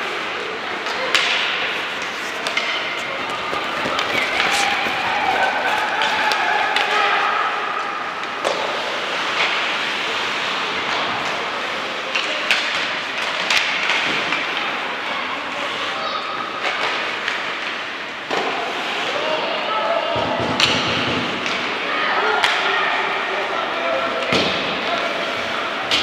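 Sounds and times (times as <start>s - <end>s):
hockey sticks and puck knocking: 0.9s - 7.0s
skates scraping on ice: 1.0s - 7.0s.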